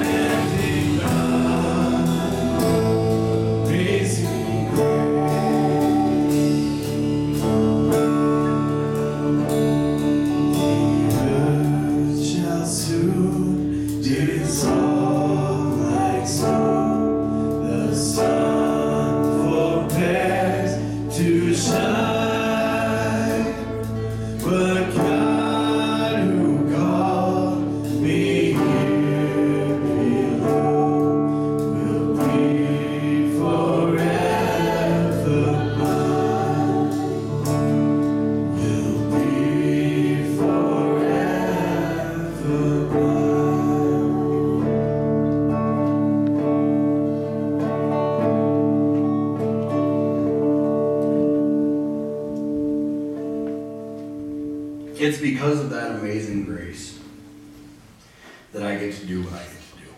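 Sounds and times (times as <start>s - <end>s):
male and female voices singing: 0.0s - 8.8s, 10.2s - 45.6s
drums: 0.0s - 55.8s
electric and acoustic guitars: 0.0s - 59.9s.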